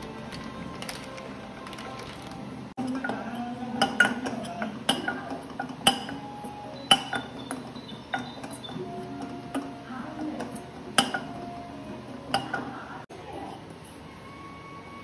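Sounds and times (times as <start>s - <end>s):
metal utensil clinking on cookware: 2.8s - 6.2s, 6.9s - 11.4s, 12.3s - 12.8s.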